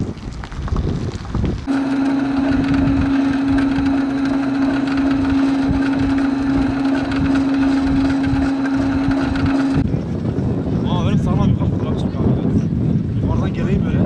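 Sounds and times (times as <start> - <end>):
rope tow mechanical hum: 1.6 - 10.1.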